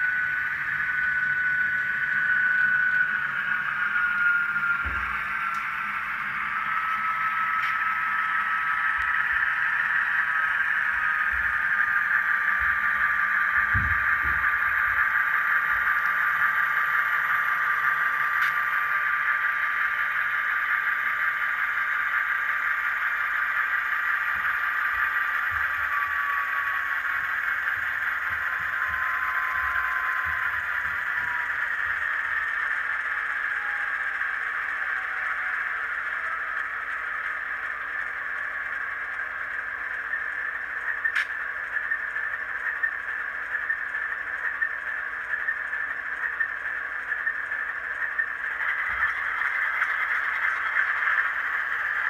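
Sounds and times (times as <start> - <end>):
tinny diesel engine sound effect: 0.0 - 52.0.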